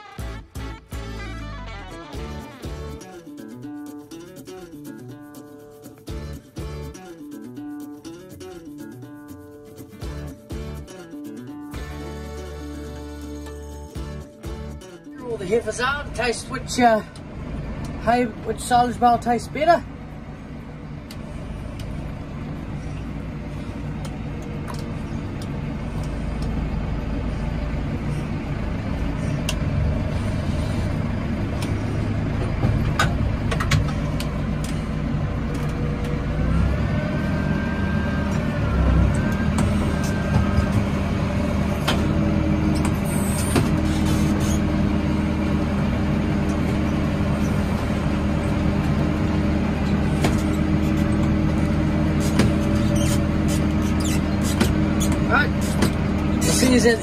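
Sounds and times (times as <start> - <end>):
tractor engine running: 0.0 - 57.0
wavering whistle-like tone: 36.9 - 41.6.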